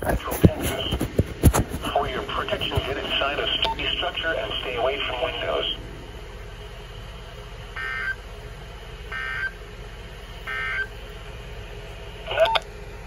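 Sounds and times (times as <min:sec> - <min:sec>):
faint radio hiss: 0:00.0 - 0:05.9
alert data tone bursts: 0:10.5 - 0:10.9.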